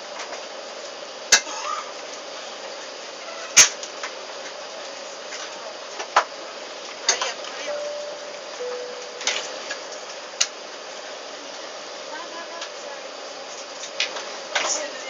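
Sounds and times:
airplane cabin hum: 7.6s - 10.4s.

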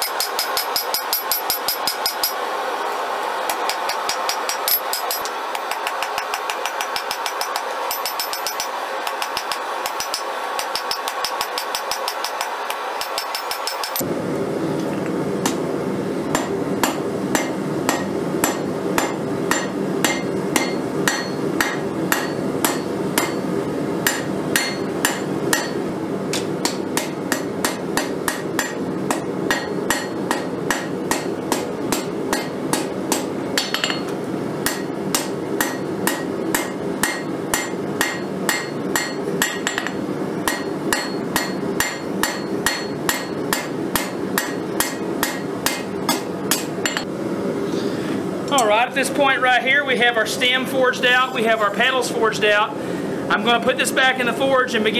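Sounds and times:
hammer striking steel on anvil: 0.0s - 2.4s, 3.5s - 14.0s, 16.3s - 47.1s.

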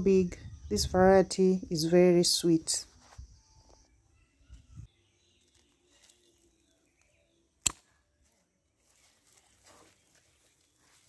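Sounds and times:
rustle of vines and leaves: 5.2s - 7.1s, 8.2s - 11.0s
pruning shears snapping shut: 7.6s - 7.9s.

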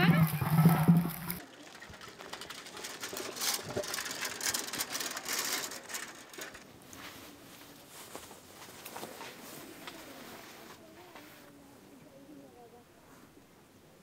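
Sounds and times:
bicycle clicking and rattling: 0.0s - 7.0s.

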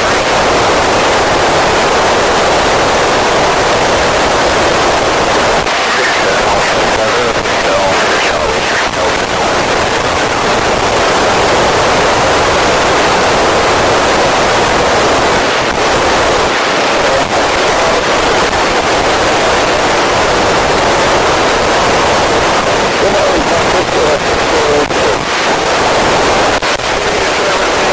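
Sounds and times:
radio static hiss: 0.0s - 27.9s.

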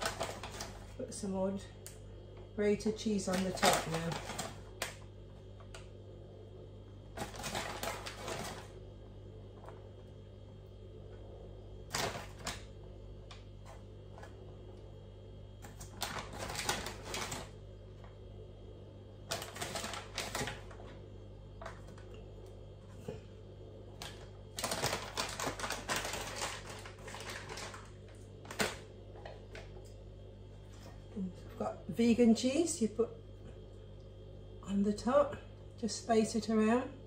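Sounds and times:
plastic bag crinkling: 0.0s - 1.2s, 3.0s - 5.8s, 7.1s - 8.8s, 15.6s - 17.6s, 19.2s - 21.0s, 23.9s - 29.8s
low steady hum: 0.0s - 37.0s.

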